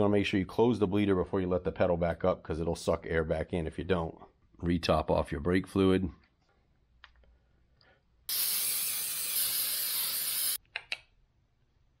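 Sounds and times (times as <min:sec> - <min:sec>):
aerosol spray can hissing: 0:08.3 - 0:10.6.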